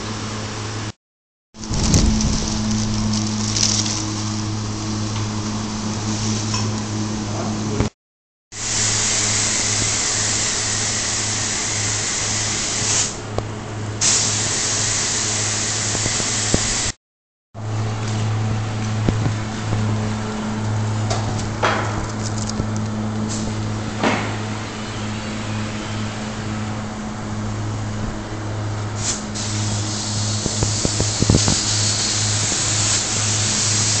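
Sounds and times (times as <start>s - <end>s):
low hum: 1.6s - 7.9s, 17.6s - 29.0s
spray gun hissing: 8.6s - 13.2s, 14.0s - 16.9s, 29.0s - 34.0s.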